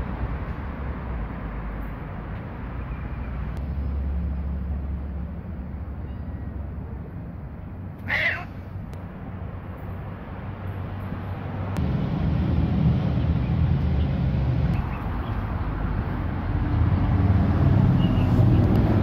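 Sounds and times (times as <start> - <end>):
low outdoor rumble: 3.5 - 19.0
cat meowing: 8.0 - 8.6.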